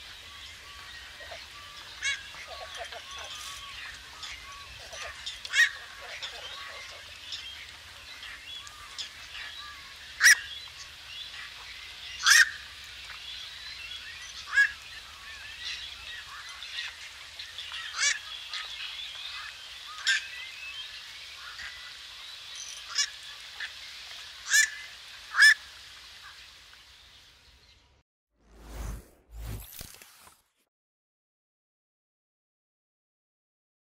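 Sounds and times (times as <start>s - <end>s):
small birds chirping: 0.0s - 28.0s
heron quok calls: 1.2s - 7.1s.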